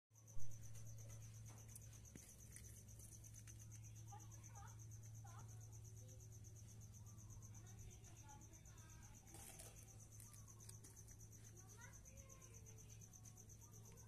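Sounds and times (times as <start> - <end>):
faint chirps: 0.2 - 14.0
high-pitched insect trill: 0.2 - 14.0.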